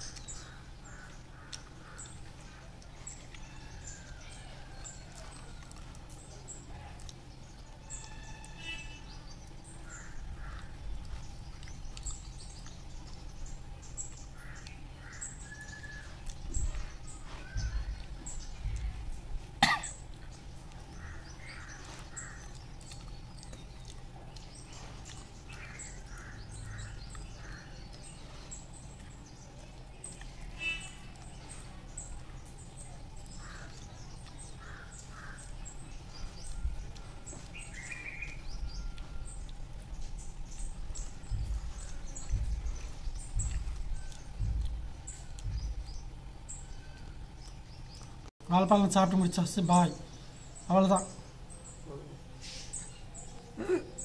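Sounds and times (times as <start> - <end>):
birds calling: 0.0 - 54.0
steady low hum: 0.0 - 54.0
low thumps: 39.4 - 47.3.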